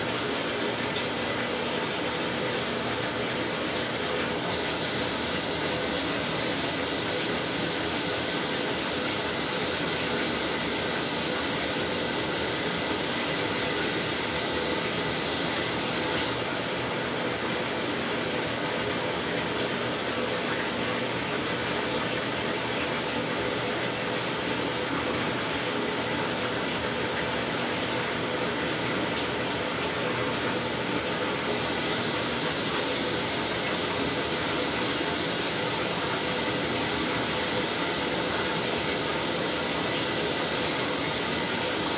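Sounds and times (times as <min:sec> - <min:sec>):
washing machine hum: 0:00.0 - 0:41.9.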